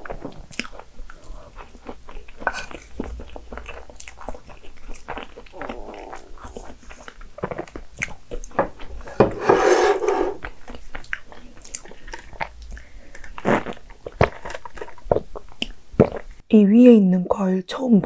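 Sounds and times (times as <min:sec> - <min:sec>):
chewing with mouth smacks: 0:00.0 - 0:08.9, 0:10.6 - 0:16.4
sip of coffee: 0:09.0 - 0:10.5
swallow or slurp: 0:09.3 - 0:10.4.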